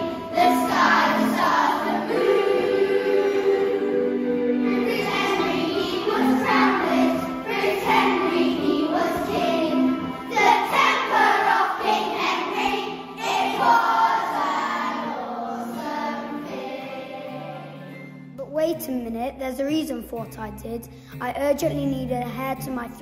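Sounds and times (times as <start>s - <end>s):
children singing in unison: 0.0s - 18.0s
musical accompaniment: 0.0s - 23.0s.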